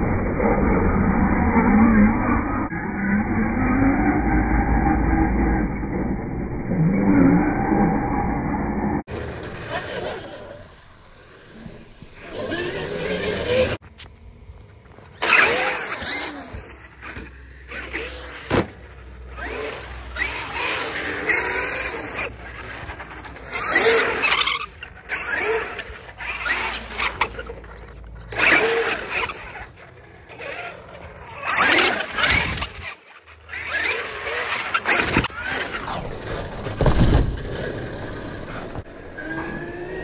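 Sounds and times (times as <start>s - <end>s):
tyre noise on concrete: 13.5s - 36.0s.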